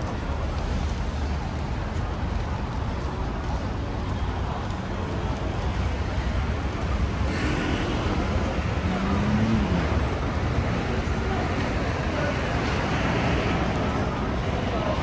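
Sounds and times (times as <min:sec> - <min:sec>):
road traffic rumble: 0:00.0 - 0:15.0
vehicle passing close: 0:07.2 - 0:11.0.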